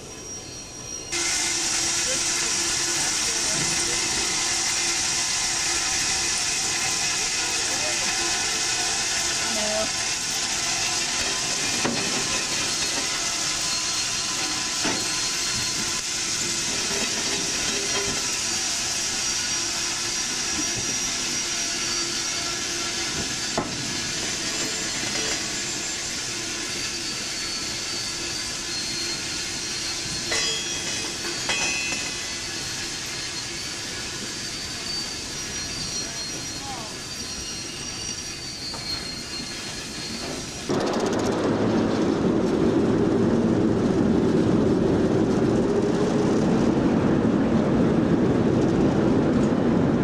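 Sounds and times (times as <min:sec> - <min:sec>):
railcars rolling slowly: 0:00.0 - 0:50.0
sharp metallic clanks: 0:30.2 - 0:32.3.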